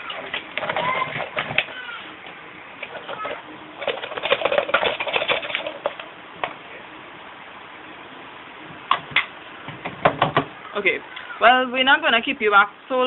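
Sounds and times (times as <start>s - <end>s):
stones rattling in plastic bottle: 3.8s - 6.0s.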